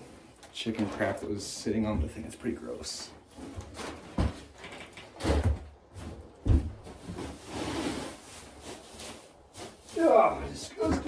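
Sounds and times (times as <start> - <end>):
wood shavings rustling: 6.8 - 11.0.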